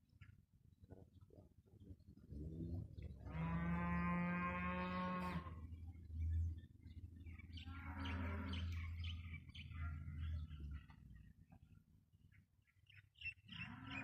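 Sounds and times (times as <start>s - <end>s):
birds chirping: 0.1s - 14.0s
cow mooing: 3.2s - 5.6s, 7.6s - 8.8s, 13.6s - 14.0s.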